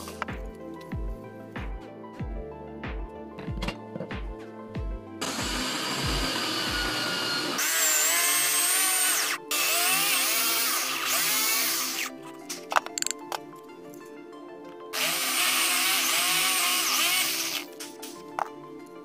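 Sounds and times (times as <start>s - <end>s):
background music with steady beat: 0.0s - 19.0s
electric drill boring into wood: 5.2s - 12.1s, 14.9s - 17.7s.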